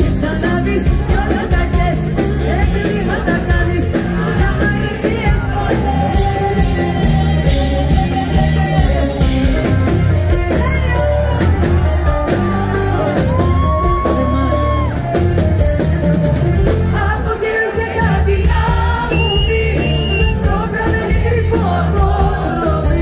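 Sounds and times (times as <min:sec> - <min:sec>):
person singing: 0:00.0 - 0:15.1
electric guitar: 0:00.0 - 0:23.0
live pop band playing: 0:00.0 - 0:23.0
percussion: 0:00.0 - 0:23.0.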